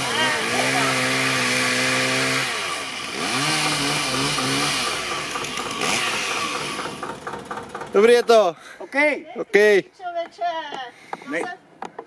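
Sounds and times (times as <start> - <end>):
small engine revving: 0.0 - 8.1.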